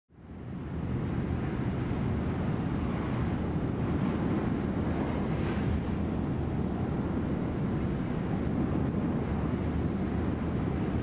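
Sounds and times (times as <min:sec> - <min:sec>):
wind buffeting microphone: 0:00.2 - 0:11.0
wind rushing: 0:00.3 - 0:11.0.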